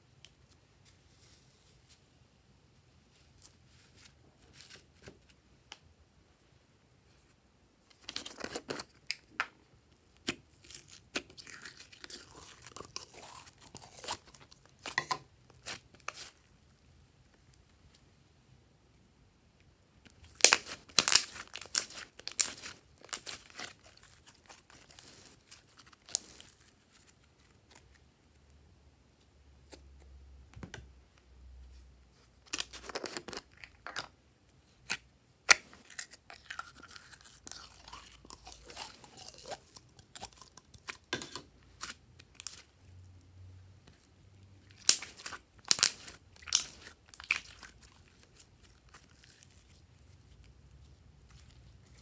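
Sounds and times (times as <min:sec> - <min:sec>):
slime sticky crackles and pops: 0:20.1 - 0:26.4, 0:44.7 - 0:49.4.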